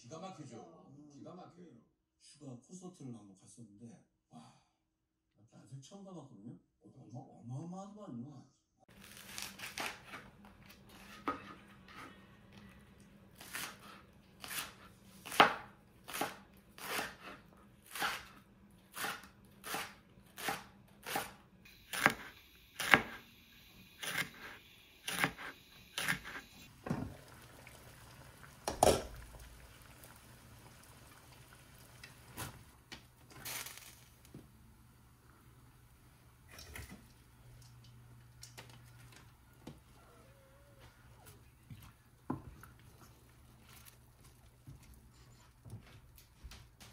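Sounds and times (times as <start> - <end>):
knife chopping on cutting board: 13.4 - 23.2, 25.1 - 26.4.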